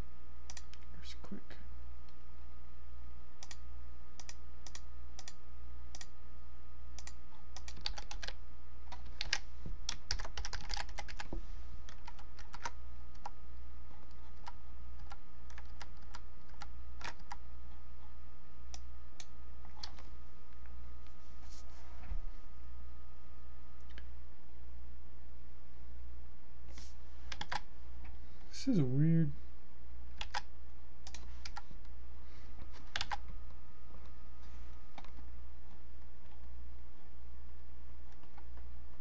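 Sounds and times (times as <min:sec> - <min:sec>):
steady low hum: 0:00.0 - 0:39.0
computer keyboard typing: 0:07.0 - 0:11.3, 0:11.9 - 0:18.1, 0:27.3 - 0:27.7, 0:30.2 - 0:31.7, 0:32.8 - 0:33.3.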